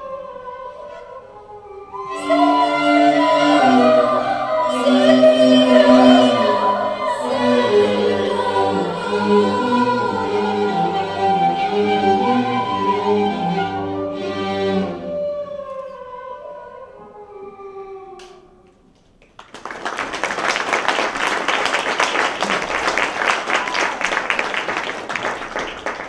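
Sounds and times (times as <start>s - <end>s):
string music: 0.0s - 18.6s
audience applause: 19.2s - 26.0s.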